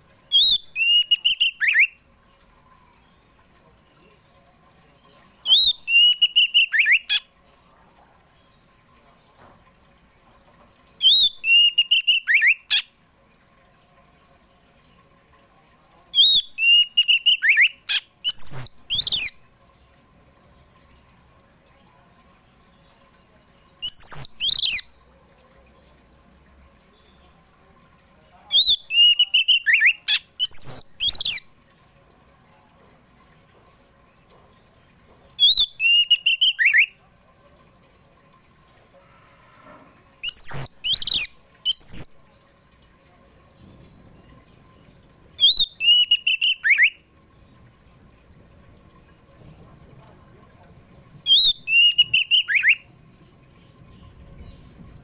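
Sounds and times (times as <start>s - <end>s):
bird singing whistled phrases: 0.3s - 2.0s, 5.5s - 7.2s, 11.0s - 12.8s, 16.2s - 19.4s, 23.8s - 24.9s, 28.5s - 31.5s, 35.4s - 37.0s, 40.2s - 42.1s, 45.4s - 47.0s, 51.3s - 52.9s.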